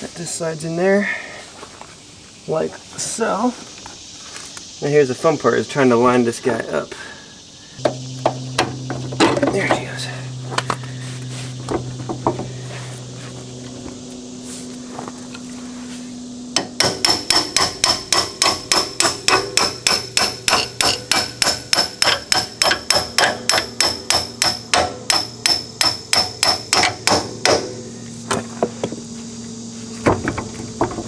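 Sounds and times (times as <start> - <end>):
hammer striking metal bolt: 16.6 - 27.8.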